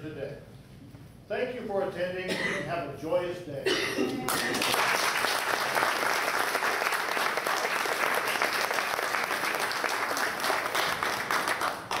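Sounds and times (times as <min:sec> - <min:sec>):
audience applauding: 0:04.3 - 0:12.0.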